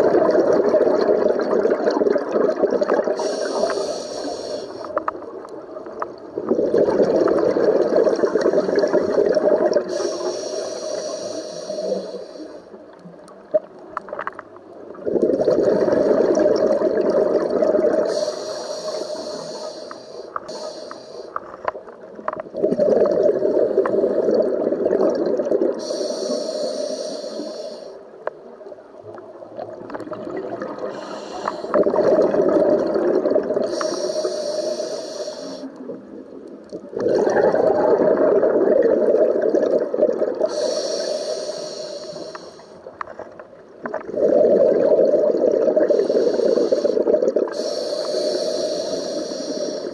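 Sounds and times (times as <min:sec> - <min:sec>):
exhaled bubbles rushing: 0:00.0 - 0:03.2, 0:06.2 - 0:10.0, 0:14.9 - 0:18.2, 0:22.4 - 0:25.9, 0:29.2 - 0:33.9, 0:35.8 - 0:40.6, 0:43.8 - 0:47.6
regulator hiss: 0:03.2 - 0:05.0, 0:09.9 - 0:12.8, 0:18.0 - 0:21.5, 0:25.8 - 0:28.2, 0:30.8 - 0:31.8, 0:33.6 - 0:36.0, 0:40.5 - 0:42.9, 0:45.8 - 0:49.9.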